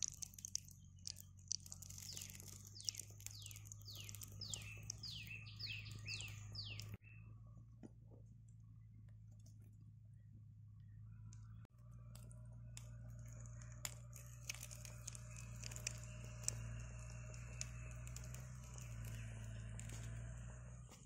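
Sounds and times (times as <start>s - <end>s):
batter sizzling with pops: 0.0s - 5.2s, 12.8s - 20.1s
low hum: 0.0s - 21.0s.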